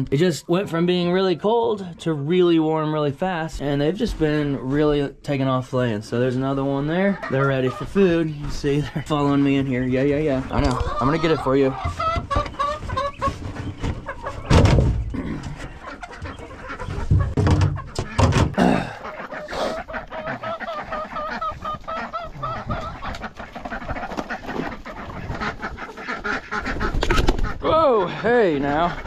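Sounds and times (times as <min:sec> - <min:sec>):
chickens clucking and calling: 0:00.0 - 0:29.0
knocks and clatter: 0:11.8 - 0:18.6.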